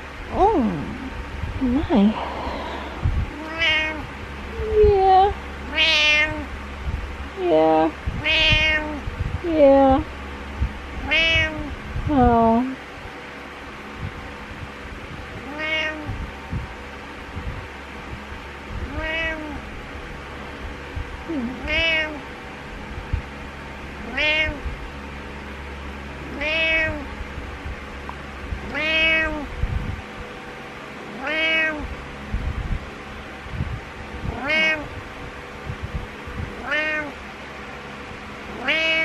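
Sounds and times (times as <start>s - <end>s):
cat meowing: 3.3s - 4.1s, 5.7s - 6.5s, 8.2s - 9.0s, 11.0s - 11.7s, 15.4s - 16.1s, 18.8s - 19.6s, 21.4s - 22.2s, 24.0s - 24.6s, 26.3s - 27.1s, 28.7s - 29.5s, 31.2s - 31.9s, 34.3s - 34.9s, 36.6s - 37.2s, 38.5s - 39.0s.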